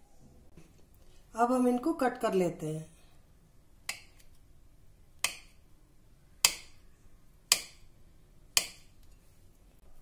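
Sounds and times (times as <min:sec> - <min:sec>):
knife tapping on a plate: 0:06.4 - 0:06.8, 0:07.5 - 0:07.8, 0:08.6 - 0:08.9.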